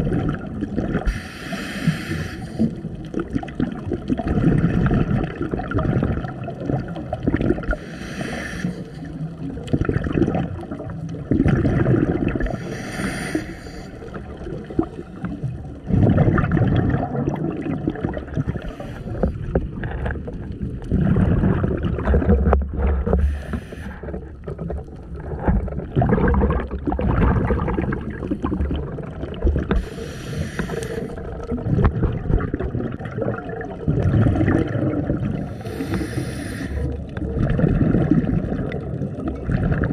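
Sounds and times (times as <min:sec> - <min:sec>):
underwater exhaled bubbles: 0:00.0 - 0:39.9
regulator hiss: 0:01.1 - 0:02.6, 0:07.8 - 0:09.0, 0:12.6 - 0:13.9, 0:35.6 - 0:36.8.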